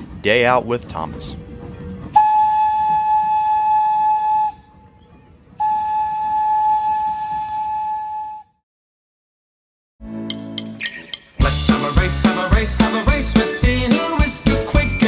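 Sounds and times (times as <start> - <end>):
steam whistle: 2.1 - 4.9, 5.6 - 8.6.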